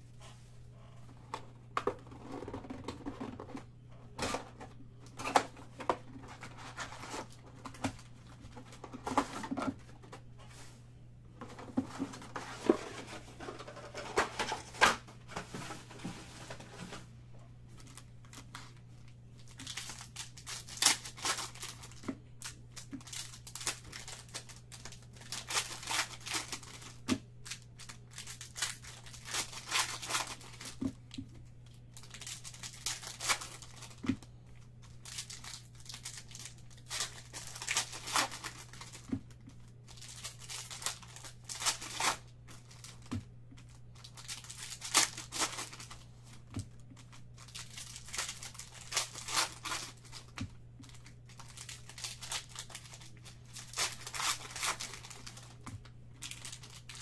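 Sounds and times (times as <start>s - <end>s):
foil wrappers tearing and crinkling: 6.1s - 9.6s, 19.4s - 39.2s, 39.8s - 57.0s.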